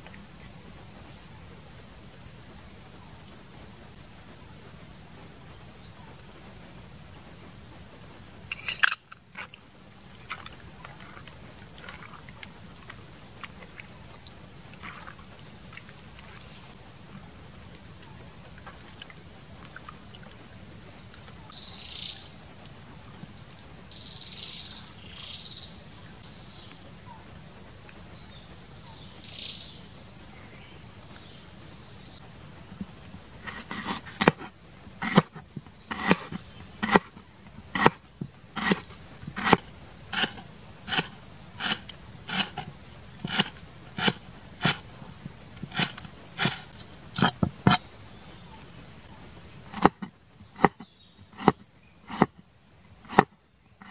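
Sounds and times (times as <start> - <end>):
insects buzzing: 0.0 - 53.9
wet squelching of hands mixing: 8.5 - 16.8
cleaver chopping on wooden board: 33.4 - 37.2, 37.8 - 38.0, 38.6 - 39.6, 40.2 - 42.7, 43.3 - 44.8, 45.6 - 47.8, 49.7 - 50.8, 51.4 - 52.3, 53.1 - 53.9.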